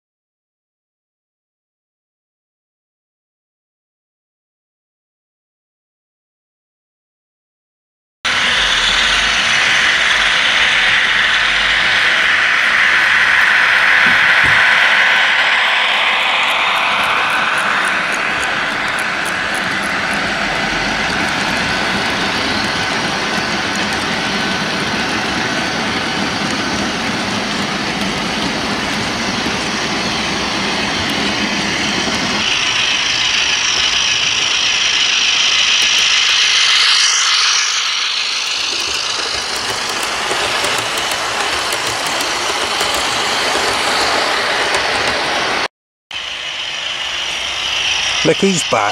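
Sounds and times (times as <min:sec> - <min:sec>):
model train hissing run: 0:08.3 - 0:48.9
model train wheels clattering: 0:38.5 - 0:45.4.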